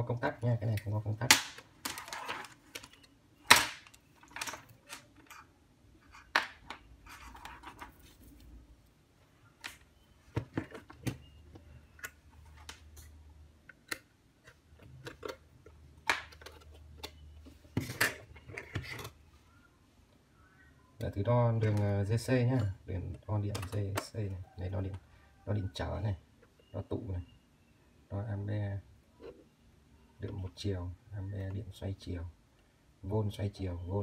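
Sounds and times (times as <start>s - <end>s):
multimeter and leads being handled: 0.5s - 8.5s.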